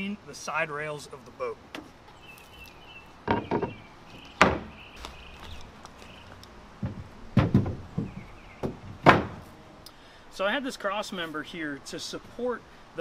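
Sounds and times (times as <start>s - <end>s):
plywood panels knocking on wood: 3.3s - 3.8s, 4.4s - 4.7s, 6.8s - 9.4s.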